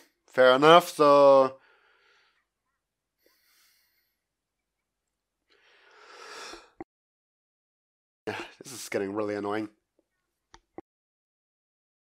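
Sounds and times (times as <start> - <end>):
man exhaling breathily: 5.6 - 6.8.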